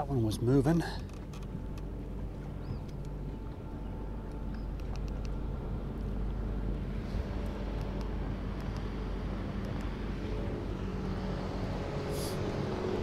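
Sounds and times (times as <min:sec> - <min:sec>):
boat motor humming: 0:00.0 - 0:13.0
water noise: 0:00.0 - 0:13.0
wind: 0:00.0 - 0:13.0
faint clicks: 0:02.8 - 0:03.2, 0:04.2 - 0:05.4.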